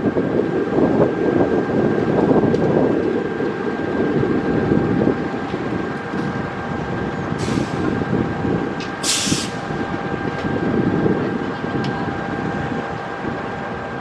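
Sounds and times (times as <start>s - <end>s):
train wheels rumbling on rail: 0.0s - 14.0s
short hisses: 9.0s - 9.6s.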